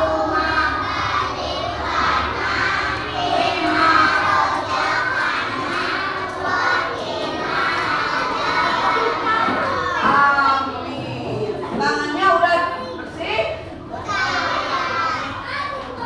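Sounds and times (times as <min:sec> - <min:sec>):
children singing in unison: 0:00.0 - 0:10.7, 0:13.8 - 0:15.7.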